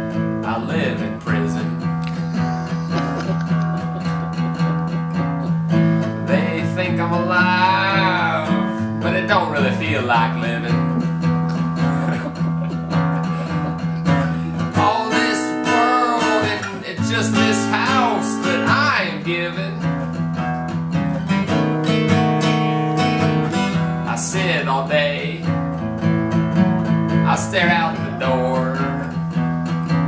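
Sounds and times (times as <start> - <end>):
acoustic guitar strumming: 0.0 - 30.0
man singing blues: 0.1 - 26.2, 26.8 - 30.0.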